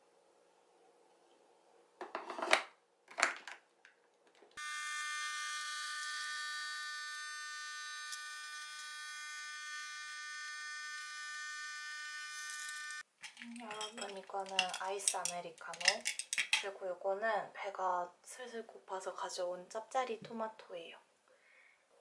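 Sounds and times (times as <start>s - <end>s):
coffee machine pump whining: 4.6s - 13.0s.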